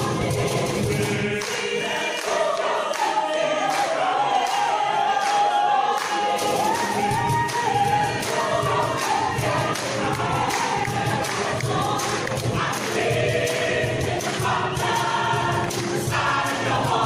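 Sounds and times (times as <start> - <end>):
mixed choir singing: 0.0 - 17.0.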